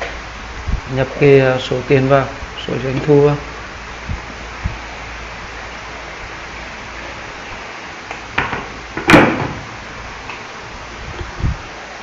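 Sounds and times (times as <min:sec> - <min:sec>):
microphone hiss: 0:00.0 - 0:12.0.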